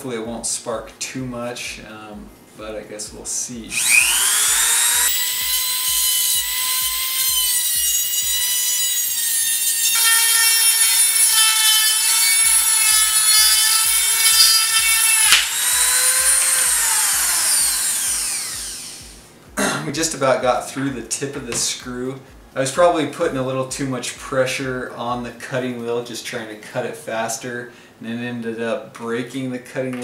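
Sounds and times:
rotary tool grinding metal: 0:03.7 - 0:19.1
cutoff wheel breaking crack: 0:15.3 - 0:15.6.

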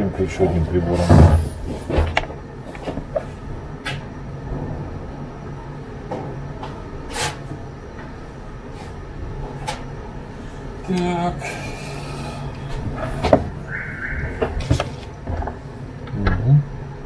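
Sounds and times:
steady low hum: 0:00.0 - 0:17.0
chair shifting: 0:00.9 - 0:03.4, 0:14.3 - 0:15.6.

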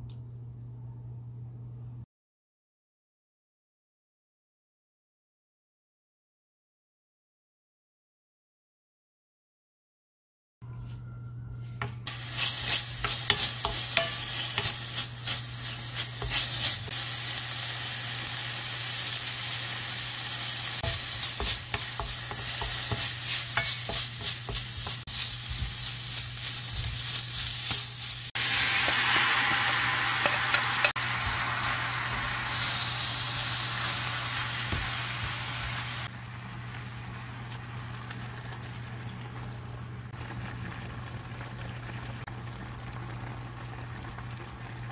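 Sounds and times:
pork sizzling in hot oil: 0:12.0 - 0:37.3
spatula scraping pan: 0:12.1 - 0:16.9, 0:20.8 - 0:29.6.

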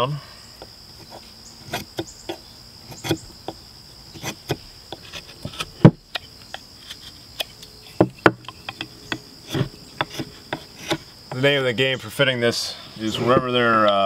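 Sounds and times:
steady high-pitched whine: 0:00.0 - 0:14.0
knife whittling wood: 0:01.0 - 0:11.4.

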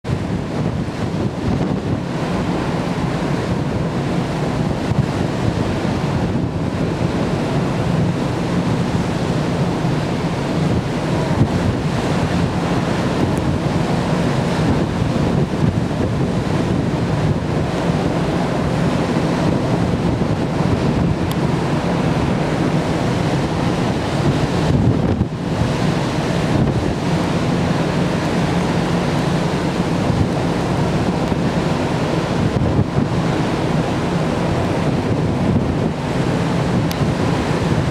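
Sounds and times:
sea rushing: 0:00.0 - 0:37.9
wind buffeting microphone: 0:00.0 - 0:37.9.

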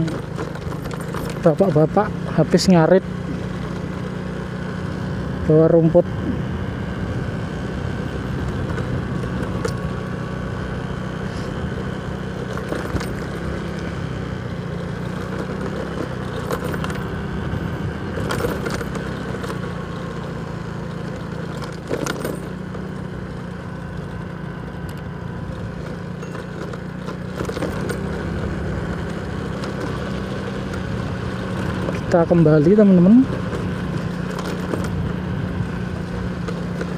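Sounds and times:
rattles and knocks: 0:00.0 - 0:02.0, 0:18.2 - 0:19.7, 0:21.2 - 0:22.9, 0:25.5 - 0:30.0
motorcycle engine running: 0:00.0 - 0:36.9.

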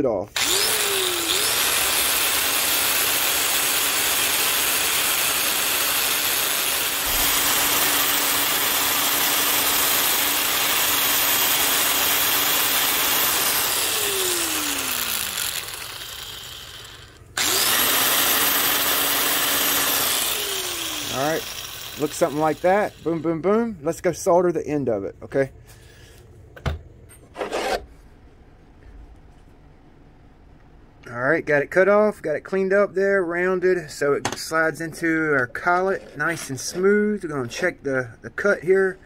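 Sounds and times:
grinder cutoff wheel whining: 0:00.3 - 0:23.7
steel cable grinding: 0:00.4 - 0:23.6.

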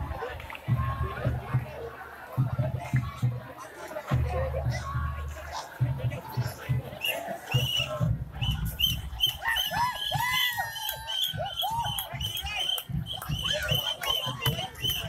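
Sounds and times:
crowd whooping and yelling: 0:08.6 - 0:15.0.

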